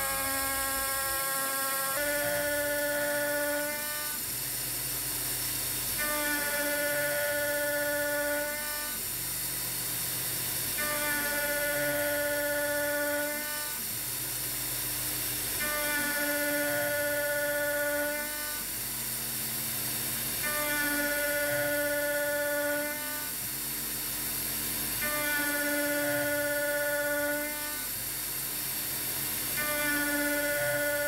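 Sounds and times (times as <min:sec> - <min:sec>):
pitched metal cutting tone: 0:00.0 - 0:04.4, 0:05.3 - 0:09.1, 0:10.6 - 0:14.0, 0:15.5 - 0:18.8, 0:20.2 - 0:23.5, 0:24.9 - 0:28.0, 0:28.8 - 0:31.0.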